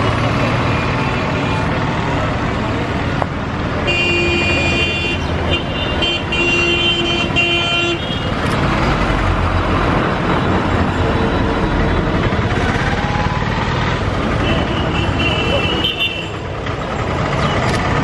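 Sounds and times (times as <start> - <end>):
traffic engines rumbling: 0.0 - 18.0
vehicle horn blasts: 3.8 - 8.3, 14.4 - 16.4.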